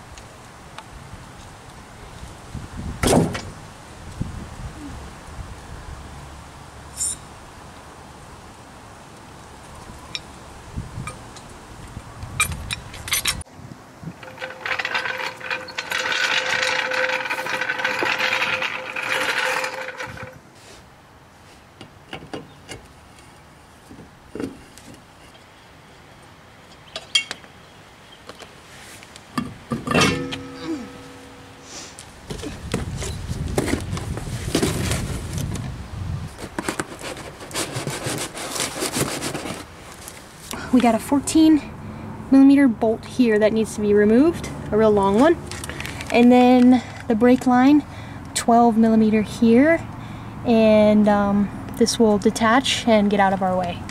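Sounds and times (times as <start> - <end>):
metal parts being handled: 12.4 - 13.4, 14.1 - 20.4, 29.7 - 31.6
hand tools clicking and knocking: 14.2 - 20.4.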